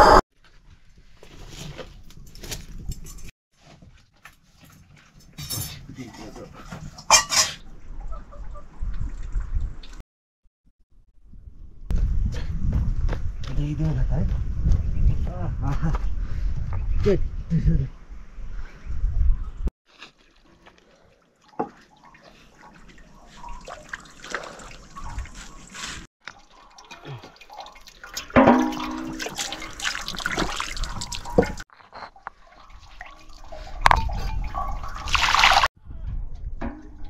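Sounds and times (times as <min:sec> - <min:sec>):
water splashing and pouring: 0:19.9 - 0:35.7.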